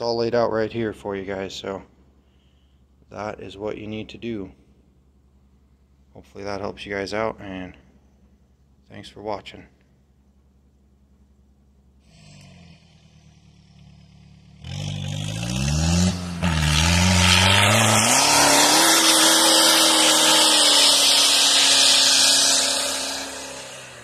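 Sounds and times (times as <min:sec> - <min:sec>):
suv engine revving: 0:12.0 - 0:24.0.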